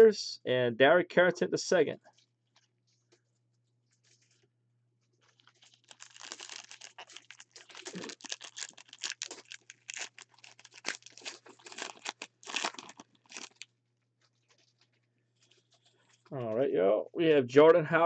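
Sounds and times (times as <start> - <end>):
foil wrapper crinkling and tearing: 5.2 - 13.7.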